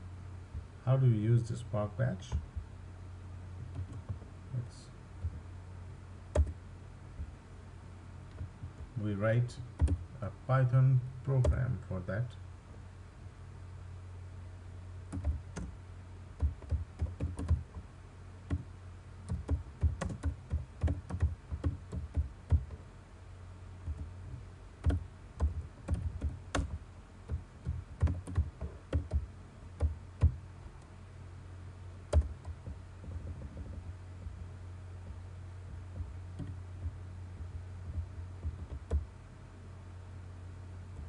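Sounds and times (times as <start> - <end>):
steady low hum: 0.0 - 41.0
typing on computer keyboard: 9.8 - 10.0, 15.1 - 15.7, 16.4 - 17.8, 19.3 - 22.8, 24.8 - 29.2, 32.1 - 32.8.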